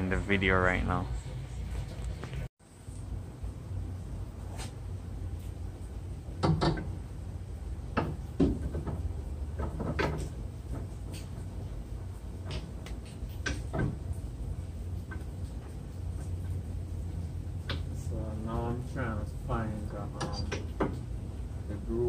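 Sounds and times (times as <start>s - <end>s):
steady low hum: 0.0s - 22.0s
axle clunking and knocking: 6.4s - 7.0s, 7.9s - 11.0s.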